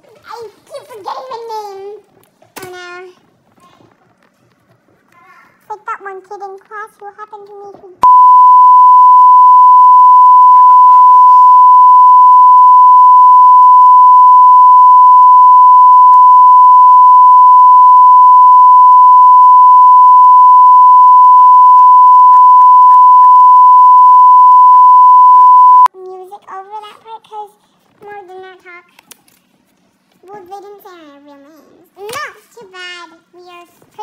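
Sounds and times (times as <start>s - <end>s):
high censor bleep tone: 8.0s - 25.9s.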